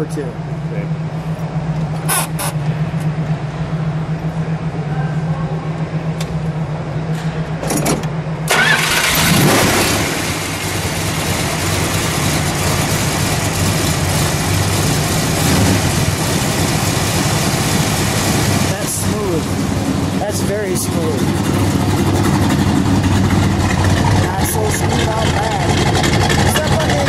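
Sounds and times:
car engine starting and idling: 0.0 - 27.0.

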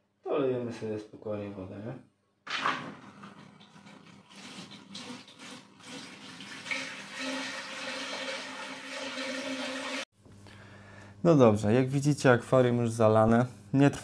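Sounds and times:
water pouring into aquarium: 2.5 - 10.0.

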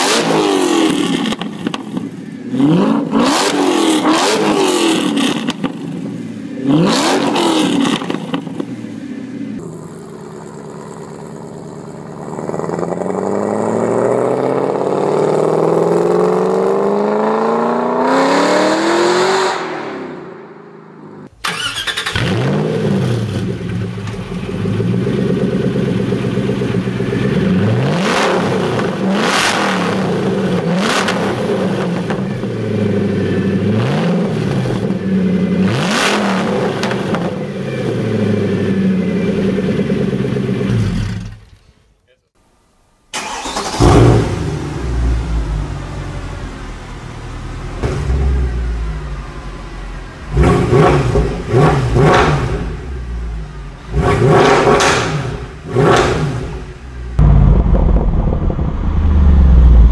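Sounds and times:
car engine revving: 0.0 - 41.5, 43.2 - 59.9
exhaust cracks: 43.2 - 59.9.

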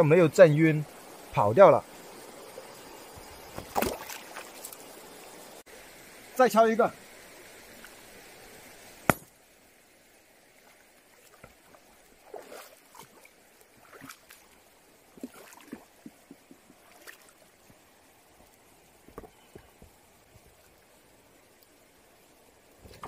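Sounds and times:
small knocks of rock: 3.2 - 4.8, 9.1 - 9.3
light splashing in water: 3.4 - 4.9, 10.6 - 14.6, 15.2 - 17.4
sledgehammer cracking on rock: 9.1 - 9.3.

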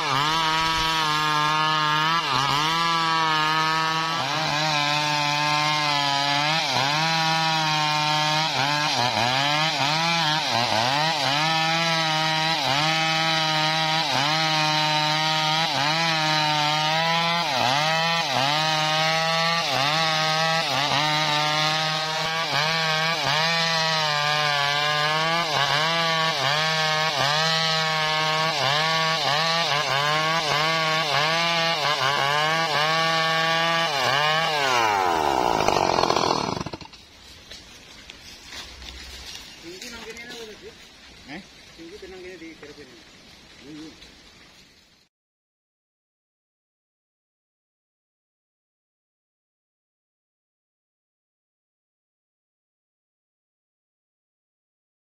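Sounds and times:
chainsaw cutting log: 0.0 - 40.7.

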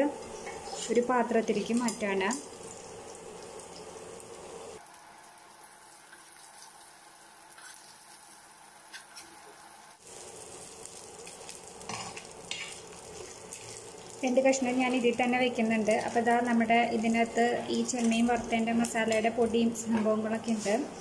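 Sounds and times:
prawns sizzling in oil: 0.0 - 21.0
metal spoon scraping a pan: 0.3 - 1.7, 7.6 - 7.9, 11.8 - 13.9.

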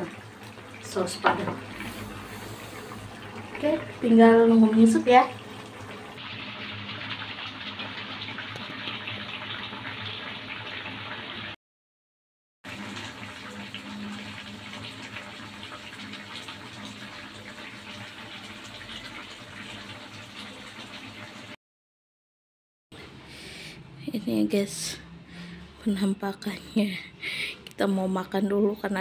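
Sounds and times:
sauce bubbling and sizzling in wok: 0.0 - 11.6, 12.7 - 21.6.

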